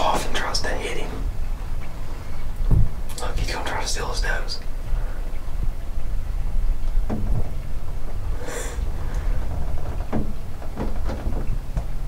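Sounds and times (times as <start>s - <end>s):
steady low rumble: 0.0s - 12.0s
soft knocks and clicks: 6.9s - 7.6s, 9.2s - 12.0s.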